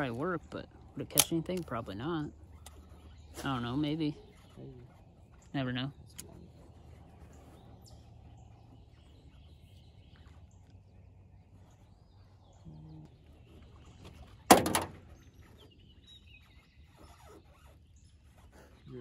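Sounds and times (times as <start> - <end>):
faint outdoor background: 0.0 - 19.0.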